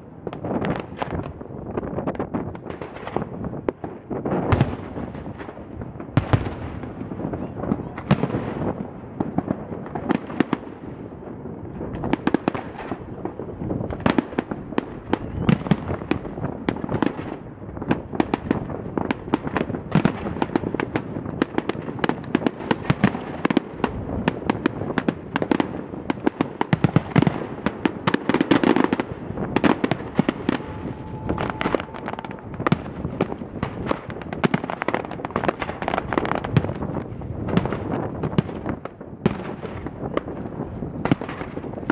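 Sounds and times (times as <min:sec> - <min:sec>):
firework shells bursting: 0:09.7 - 0:17.5.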